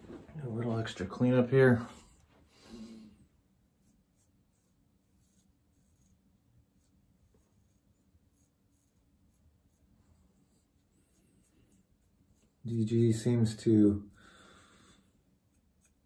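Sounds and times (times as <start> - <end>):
razor scratching stubble: 3.7 - 13.8, 15.2 - 16.0.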